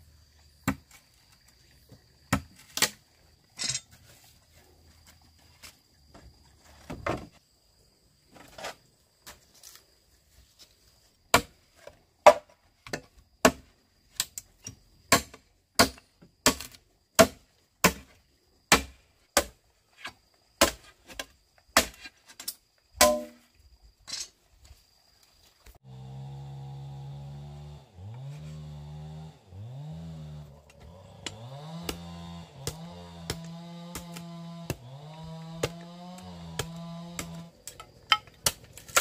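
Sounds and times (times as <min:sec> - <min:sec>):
hand tool striking something solid: 0:23.0 - 0:23.4.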